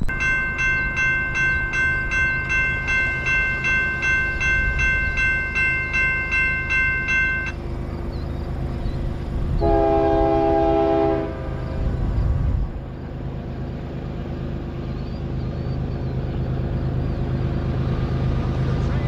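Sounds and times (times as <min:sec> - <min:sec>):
railroad crossing bell ringing: 0:00.0 - 0:11.9
locomotive chord horn blast: 0:09.4 - 0:12.0.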